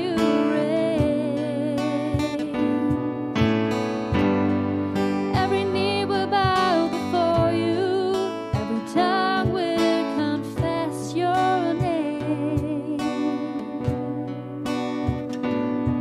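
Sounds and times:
strummed acoustic guitar: 0.0 - 16.0
person singing with vibrato: 5.1 - 15.0.

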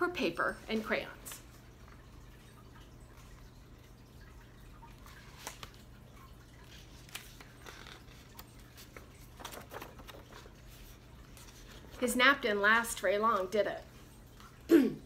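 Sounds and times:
faint room hum: 0.0 - 15.0
book pages turning: 5.0 - 5.9, 6.6 - 12.1.

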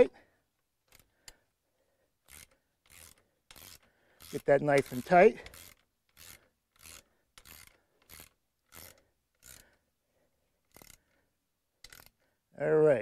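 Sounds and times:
ratchet wrench clicking: 0.9 - 1.4, 2.2 - 9.8, 10.7 - 11.2, 11.8 - 12.2.

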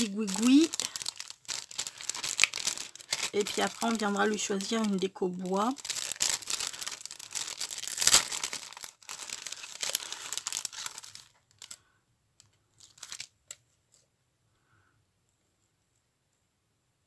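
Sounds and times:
plastic packet crinkling: 0.0 - 11.8, 12.7 - 13.6.

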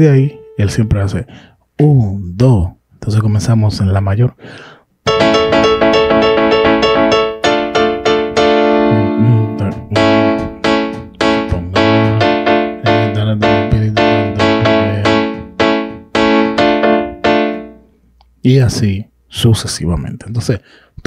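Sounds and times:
low bass notes: 5.1 - 17.9
keyboard piano chords: 5.1 - 18.0.

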